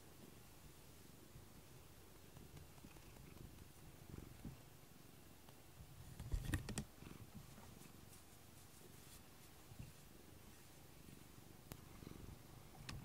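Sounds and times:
cat purring: 0:02.2 - 0:04.5.

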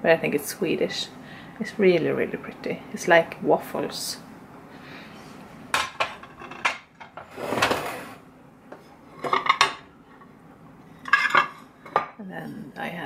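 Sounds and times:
ceramic plates clinking: 0:11.0 - 0:12.2.

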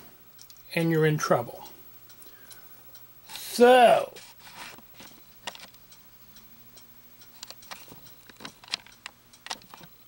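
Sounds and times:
faint low hum: 0:00.0 - 0:10.0
faint light clicks and ticks: 0:00.3 - 0:00.7, 0:01.6 - 0:03.4, 0:04.2 - 0:10.0.

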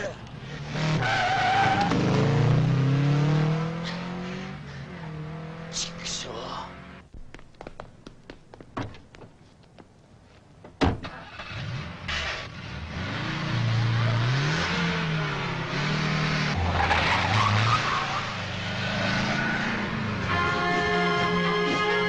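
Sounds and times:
tyre and road noise: 0:00.0 - 0:22.0
car engine accelerating: 0:00.2 - 0:07.1, 0:11.1 - 0:20.2.

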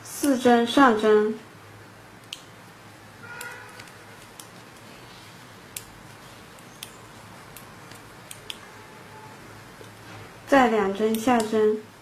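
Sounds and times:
low hum and hiss: 0:00.0 - 0:12.0
knitting needles clicking: 0:06.6 - 0:08.6, 0:11.0 - 0:11.6.

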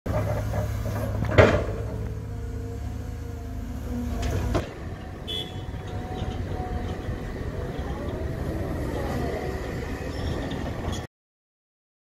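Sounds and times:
excavator diesel engine: 0:00.1 - 0:11.1.

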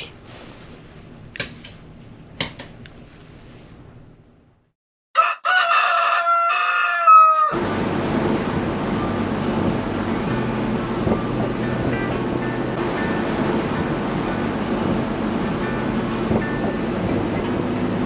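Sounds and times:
rooster crowing: 0:05.2 - 0:07.6.

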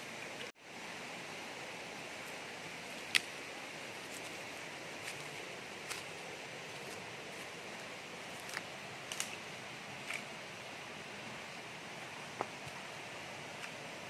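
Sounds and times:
stream flowing over rocks: 0:00.0 - 0:14.0.

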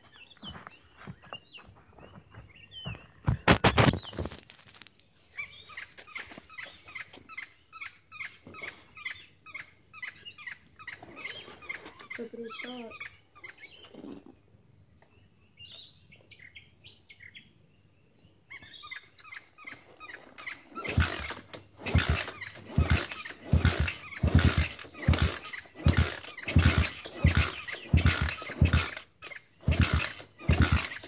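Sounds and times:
motorbike engine sputtering and firing: 0:20.4 - 0:31.0.

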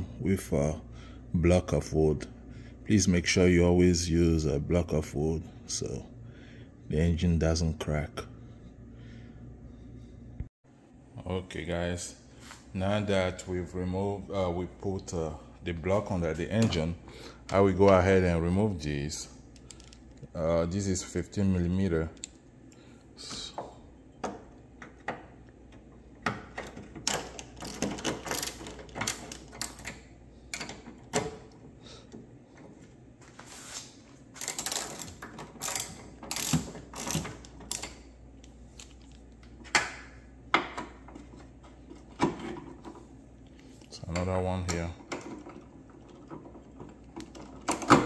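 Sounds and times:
hand ratchet clicking: 0:34.4 - 0:38.0.

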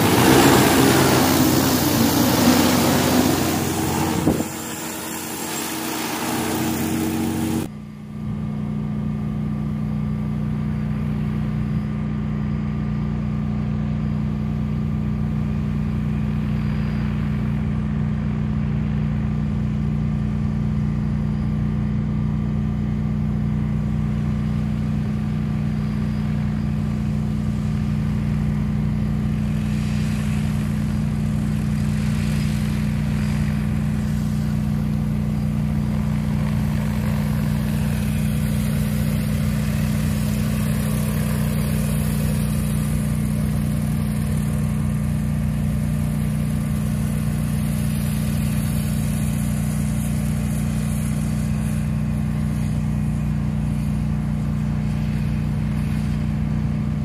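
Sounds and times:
drone propellers humming: 0:00.0 - 0:12.8, 0:20.6 - 0:57.0
hiss: 0:29.1 - 0:57.0.

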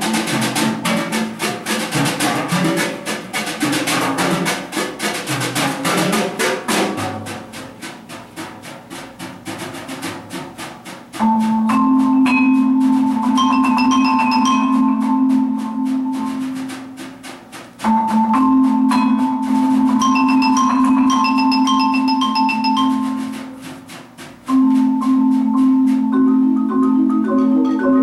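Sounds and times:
marimba mallet strokes: 0:00.0 - 0:28.0
loud held tones: 0:17.8 - 0:23.5.

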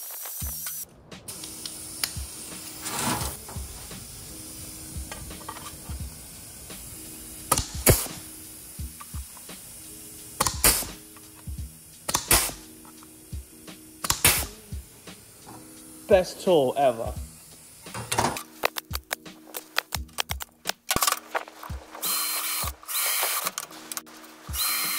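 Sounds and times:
air hissing: 0:00.0 - 0:20.1, 0:21.0 - 0:24.9
background music: 0:00.4 - 0:24.9
pneumatic tool clunks: 0:02.0 - 0:04.1, 0:05.0 - 0:06.0, 0:07.5 - 0:08.2, 0:10.4 - 0:11.0, 0:12.1 - 0:13.0, 0:14.0 - 0:14.6, 0:15.4 - 0:15.7, 0:17.9 - 0:18.5.

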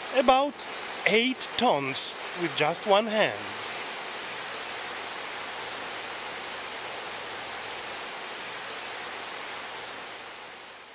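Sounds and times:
river rapids roaring: 0:00.0 - 0:08.0.

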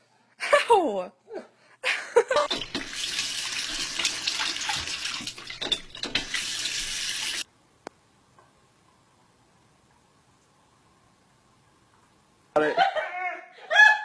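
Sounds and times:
tap water splashing into sink: 0:02.5 - 0:07.4.

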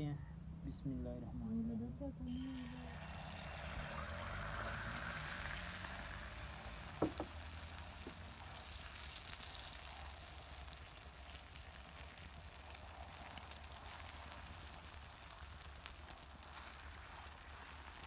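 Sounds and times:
eggs sizzling on griddle: 0:02.3 - 0:18.0.

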